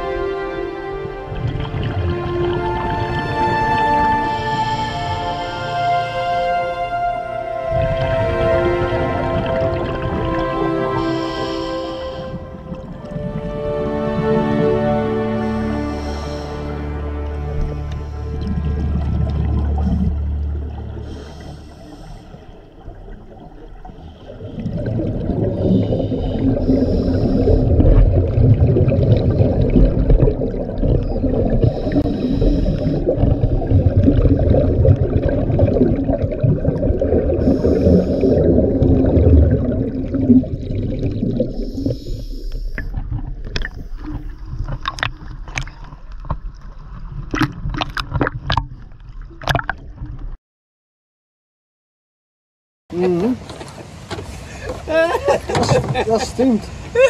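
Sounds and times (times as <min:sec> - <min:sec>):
underwater air bubbles rushing: 0:00.0 - 0:50.4
regulator breathing hisses: 0:11.0 - 0:12.4, 0:21.0 - 0:22.6, 0:31.6 - 0:33.6, 0:37.4 - 0:38.5, 0:41.6 - 0:42.9.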